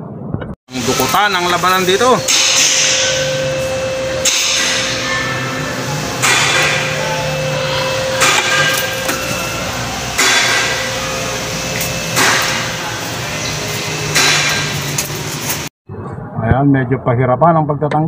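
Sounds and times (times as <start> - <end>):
hammer blows on metal: 0.7 - 15.0
steady hum: 0.7 - 15.7.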